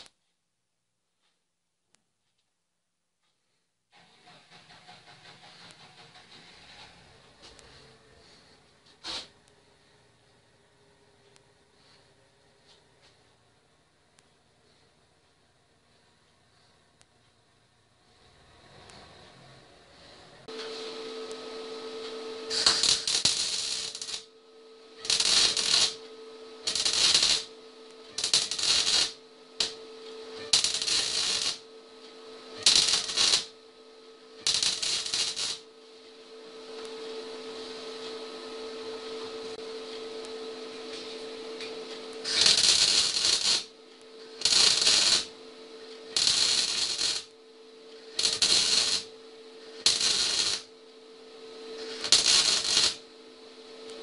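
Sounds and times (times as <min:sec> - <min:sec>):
steady low hum: 0:03.0 - 0:54.0
arc welding crackling: 0:22.0 - 0:31.7, 0:32.3 - 0:33.6, 0:34.4 - 0:35.8, 0:41.0 - 0:45.4, 0:46.0 - 0:50.8, 0:51.7 - 0:53.2.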